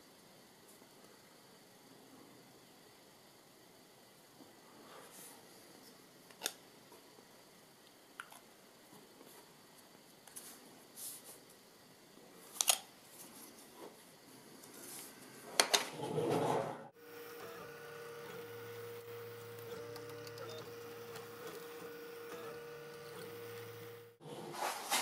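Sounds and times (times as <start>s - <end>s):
printer stepper motors humming: 16.0s - 24.4s.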